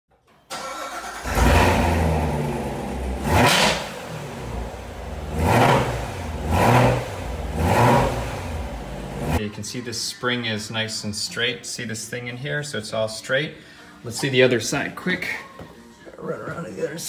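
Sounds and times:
car engine idling and revving: 0:01.1 - 0:09.4.

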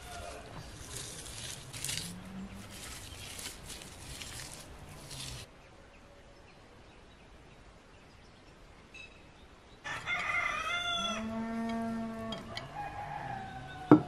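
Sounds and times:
rooster crowing: 0:09.8 - 0:14.0.

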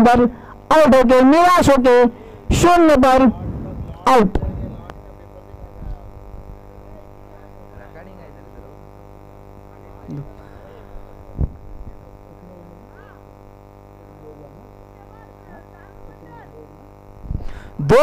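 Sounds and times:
mains hum: 0:00.0 - 0:18.0
faint distant voices: 0:03.3 - 0:17.1.

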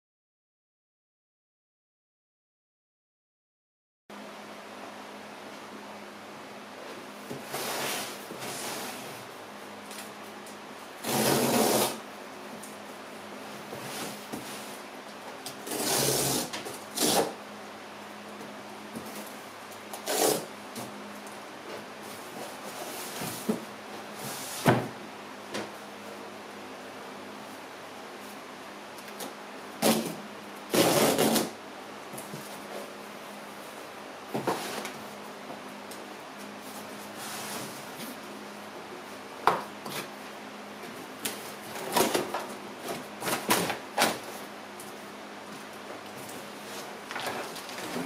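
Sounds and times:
cardboard box scrapes and bumps: 0:07.3 - 0:09.1, 0:11.0 - 0:12.0, 0:15.6 - 0:17.4, 0:29.8 - 0:31.6
cardboard scraping and rustling: 0:34.3 - 0:35.1, 0:46.6 - 0:48.0.

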